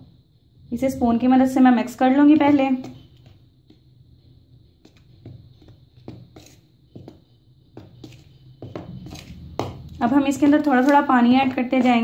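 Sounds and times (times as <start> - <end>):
spoon scraping plastic bowl: 4.8 - 7.2, 7.8 - 12.0.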